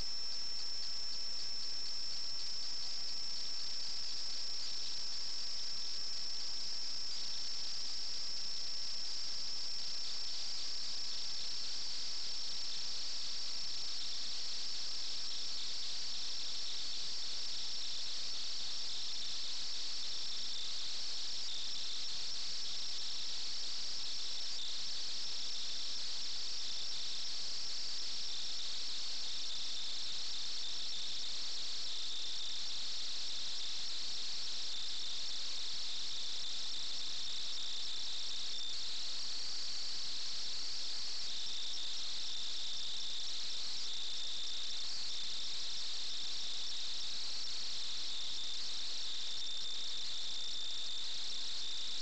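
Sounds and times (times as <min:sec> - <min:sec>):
lower insect trill: 0:00.0 - 0:52.0
insects trilling high-pitched: 0:09.8 - 0:52.0.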